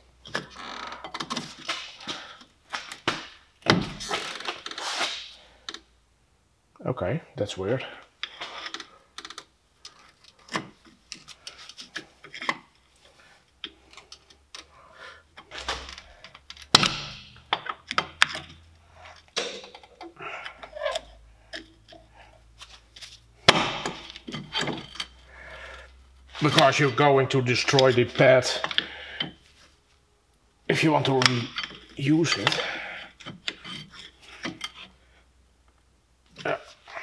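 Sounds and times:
screwdriver scraping metal: 31.6 - 34.9.

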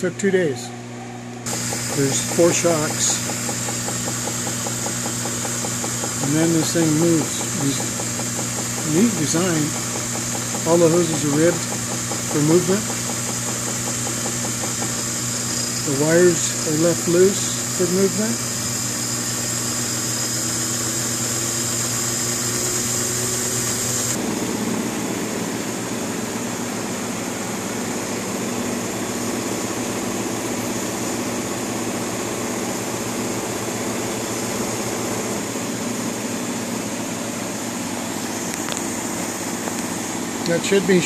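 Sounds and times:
washing machine motor hum: 1.2 - 41.0.

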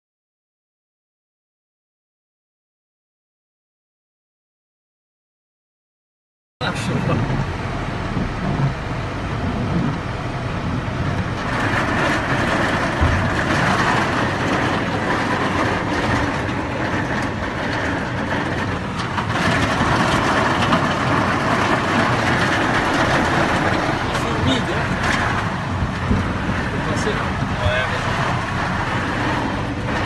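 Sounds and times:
wind rumble: 6.6 - 30.0
hail and rain pelting ground: 10.6 - 30.0.

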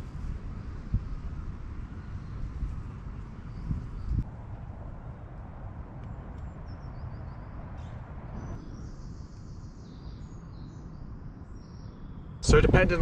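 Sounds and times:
wind rumble on microphone: 0.0 - 13.0
faint bird chirps: 6.5 - 12.4.

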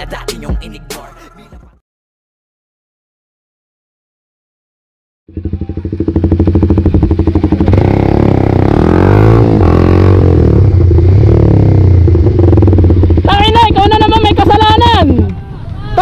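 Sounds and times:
motorcycle engine revving: 5.3 - 15.3.

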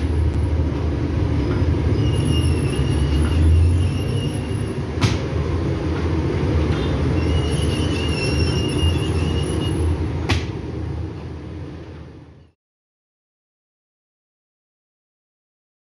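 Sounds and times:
machinery low rumble: 0.0 - 12.4.

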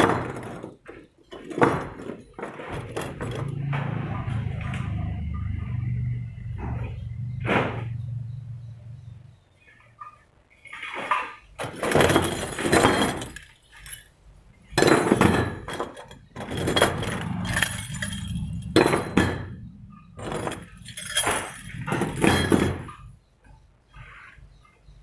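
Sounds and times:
steel washers jingling: 0.0 - 4.7, 10.5 - 23.2.

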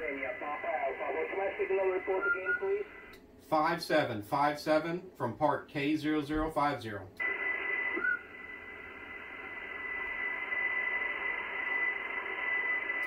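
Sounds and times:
radio speaker hiss: 0.0 - 3.1, 7.2 - 13.0.

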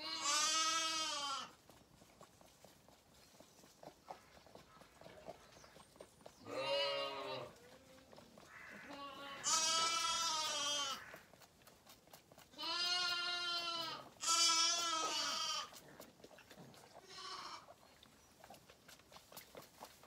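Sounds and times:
lambs bleating: 0.0 - 1.6, 6.4 - 7.9, 8.5 - 11.3, 12.5 - 15.8, 17.0 - 17.8.

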